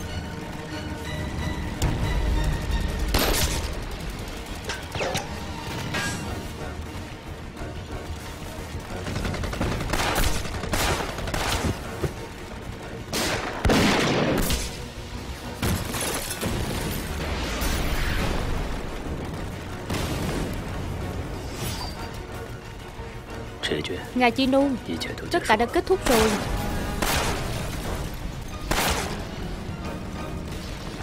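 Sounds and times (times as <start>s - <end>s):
background music score: 0.0s - 31.0s
gunshots: 2.9s - 6.6s, 8.9s - 12.4s, 13.0s - 21.9s, 26.0s - 29.5s.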